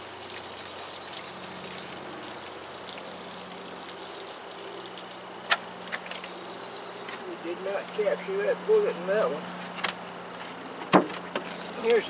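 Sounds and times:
water pouring from jug: 0.0s - 8.7s.

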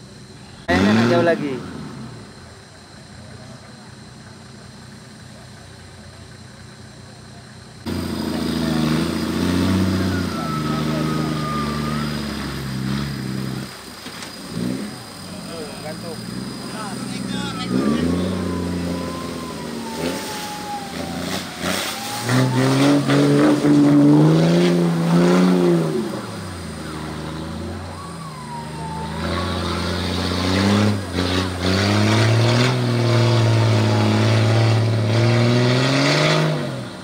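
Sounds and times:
off-road vehicle engine revving: 0.0s - 37.0s
thin whine: 7.8s - 37.0s.

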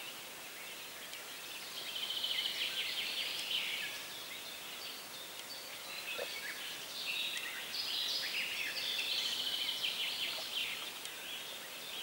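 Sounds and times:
flowing river water: 0.0s - 12.0s
songbirds chirping and trilling: 0.0s - 12.0s.

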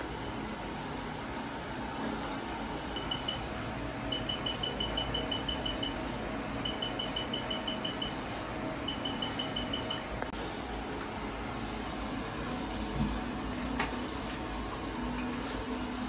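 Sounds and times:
steady low hum: 0.0s - 16.0s
short high beeps: 3.0s - 3.4s, 4.1s - 6.0s, 6.6s - 8.2s, 8.9s - 10.1s.

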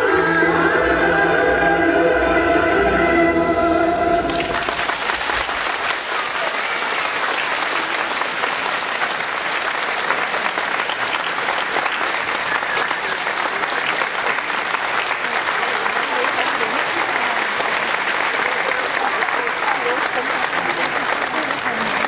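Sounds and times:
music: 0.0s - 4.8s
audience applauding: 4.2s - 22.0s.

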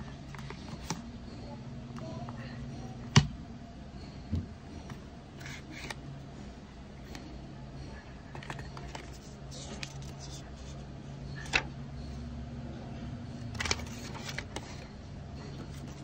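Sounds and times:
steady low hum: 0.0s - 16.0s
paper rustling: 8.4s - 10.8s, 13.5s - 14.9s.

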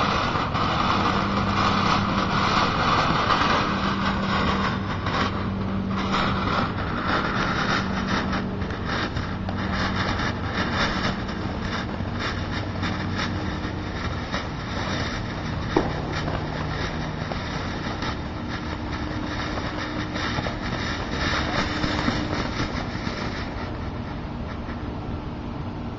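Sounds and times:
fireworks fountain hissing: 0.0s - 25.9s
firework pop: 12.0s - 24.9s.

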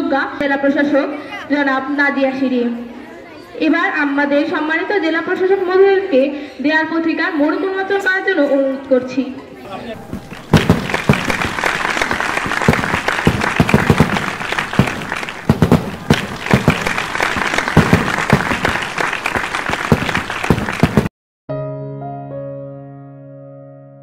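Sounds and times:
applause: 10.0s - 21.1s
fireworks pops and crackles: 10.0s - 21.1s
solo piano music: 21.5s - 24.0s.

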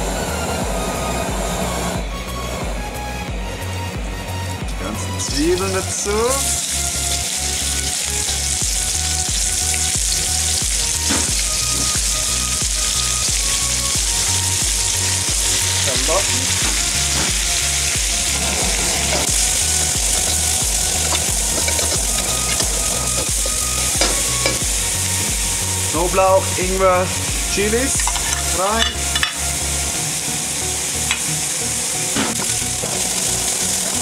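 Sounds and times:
background music with low beat: 0.0s - 31.4s
onions sizzling in hot oil: 5.2s - 34.0s
utensil scraping and knocking wok: 15.1s - 25.5s, 28.0s - 29.7s, 32.1s - 34.0s.

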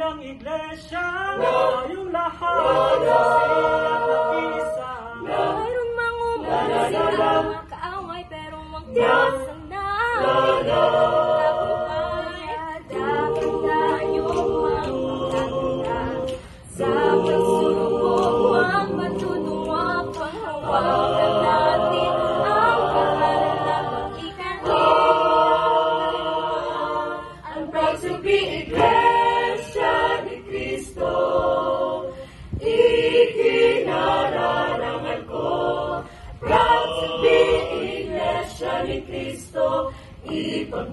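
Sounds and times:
mixed choir singing a cappella: 0.0s - 40.9s.

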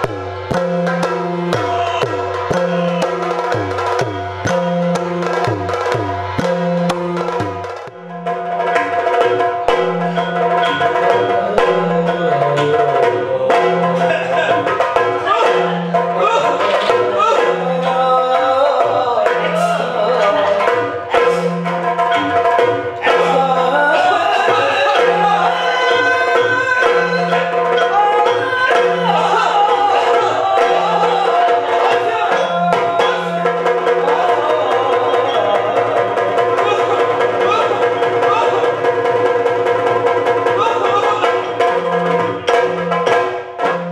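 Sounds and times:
low drum beating: 0.0s - 17.9s.

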